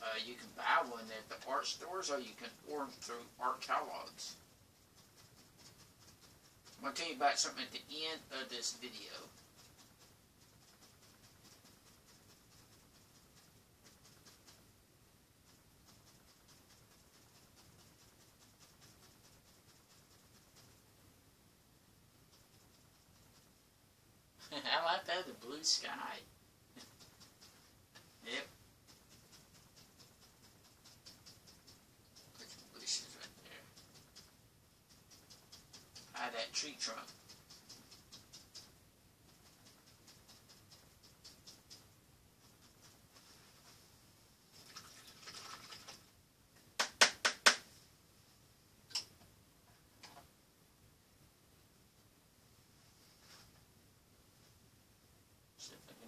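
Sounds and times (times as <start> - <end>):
paintbrush strokes on canvas: 0.0 - 21.2, 22.0 - 23.8, 24.4 - 46.2, 52.5 - 54.7
paintbrush tapping on canvas: 26.8 - 43.8.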